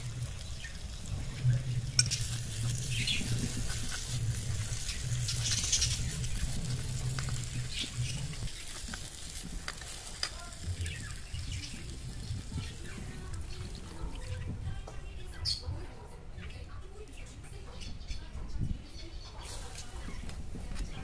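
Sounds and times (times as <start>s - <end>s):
masala sizzling in a clay pot: 0.0s - 15.4s, 19.1s - 21.0s
steel spoon scraping a pot: 1.9s - 8.4s.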